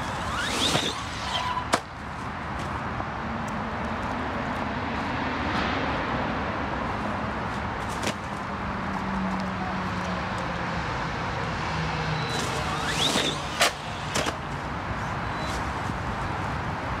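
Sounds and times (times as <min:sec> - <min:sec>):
rc car motor whine: 0:00.0 - 0:01.7, 0:12.0 - 0:14.4
outdoor noise: 0:00.0 - 0:17.0.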